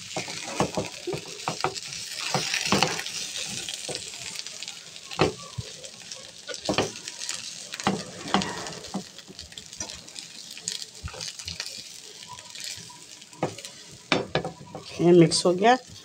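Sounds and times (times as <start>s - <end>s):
spatula scraping a pan: 6.5s - 9.2s.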